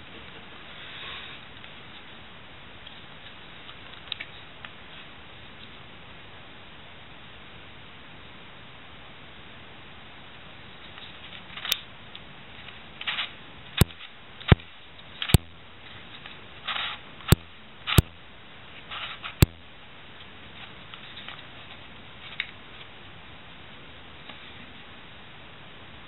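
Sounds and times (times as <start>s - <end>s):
steady hiss: 0.0s - 26.0s
sharp plastic clicks: 13.0s - 15.6s, 16.2s - 18.2s, 19.0s - 19.7s
plastic pieces scraping and rustling: 18.9s - 19.4s.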